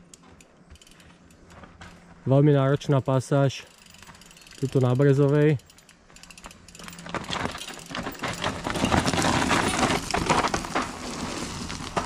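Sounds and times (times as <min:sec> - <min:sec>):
bike clattering and rattling: 0:00.0 - 0:12.0
tyres crunching over stones: 0:06.4 - 0:12.0.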